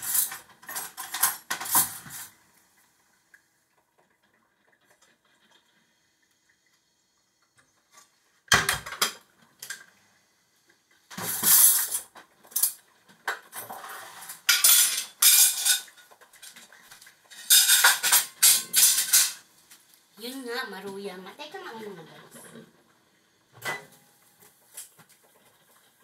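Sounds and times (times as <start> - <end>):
plates and cutlery clinking: 0.0 - 2.3, 11.1 - 19.5, 23.6 - 25.1.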